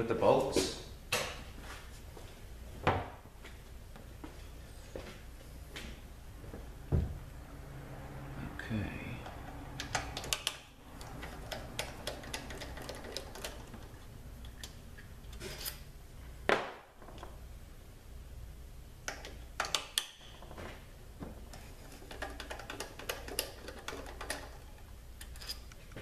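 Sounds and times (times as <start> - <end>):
hand ratchet clicking: 9.2 - 13.9.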